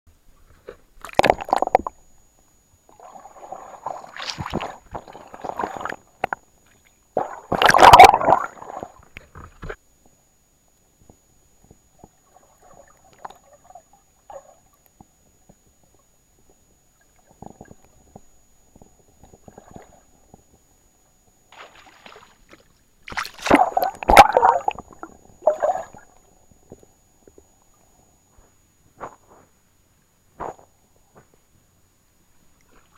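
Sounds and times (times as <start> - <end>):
water splashing and sloshing: 0.4 - 2.0, 2.9 - 9.8, 12.0 - 20.6, 21.5 - 28.0, 32.4 - 32.9.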